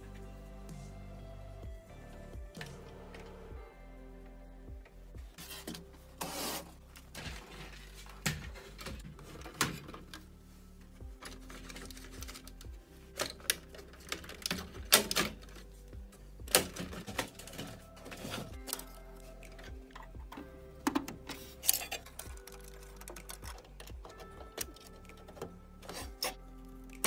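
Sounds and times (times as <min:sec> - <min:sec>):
quiet background music: 0:00.0 - 0:27.0
plastic clicks and rattles: 0:11.2 - 0:15.6, 0:16.5 - 0:27.0.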